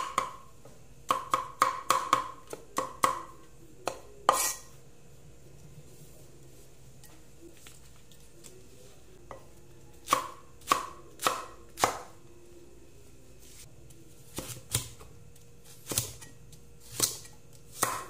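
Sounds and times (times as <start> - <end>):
cleaver chopping on wooden board: 1.1 - 3.3, 17.8 - 18.0.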